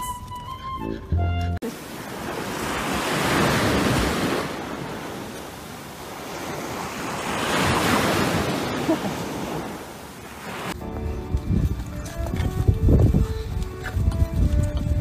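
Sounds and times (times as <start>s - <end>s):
ocean surf washing on beach: 1.6s - 10.8s.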